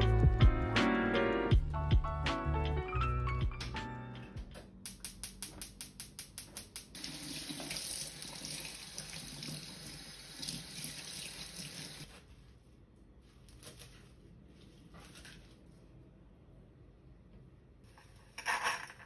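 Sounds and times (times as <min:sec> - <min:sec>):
tap running into sink: 0:06.4 - 0:09.6.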